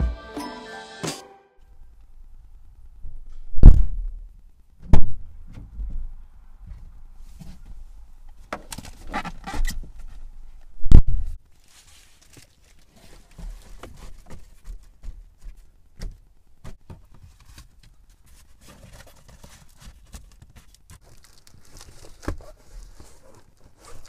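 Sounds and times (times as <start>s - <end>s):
faint rustling: 5.3s - 24.0s.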